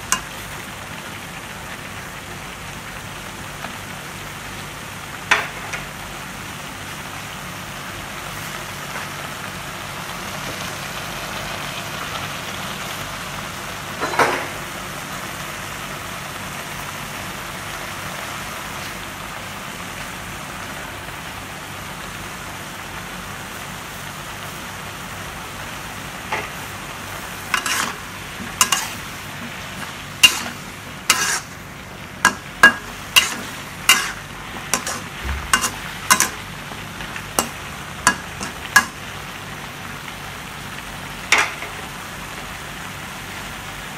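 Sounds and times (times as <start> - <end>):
food sizzling in a wok: 0.0 - 43.9
spatula striking a wok: 27.5 - 29.0, 30.2 - 31.5, 32.2 - 36.5, 37.4 - 39.0.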